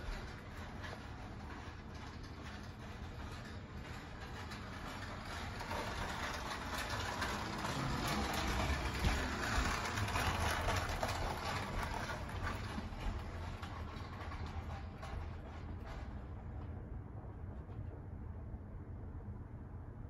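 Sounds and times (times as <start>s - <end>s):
tyres rolling on laminate floor: 0.0s - 17.0s
toy car electric motor whirring: 4.3s - 15.1s.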